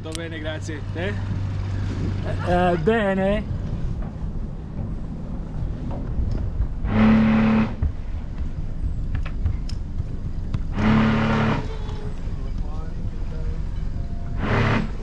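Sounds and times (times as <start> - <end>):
bow thruster humming whine: 1.1 - 15.0
boat engine idling: 6.6 - 15.0.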